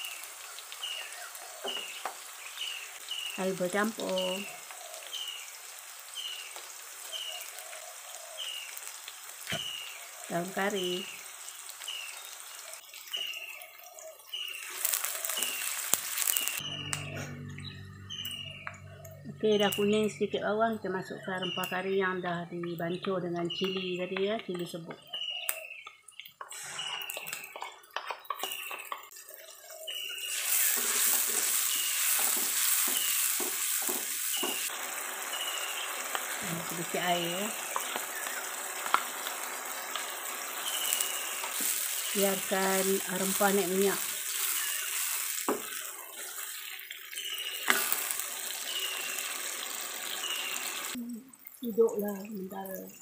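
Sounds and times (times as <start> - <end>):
paste sizzling in hot oil: 0.0 - 13.6, 14.3 - 16.6, 28.3 - 51.6
wooden spatula scraping wok: 30.3 - 34.7.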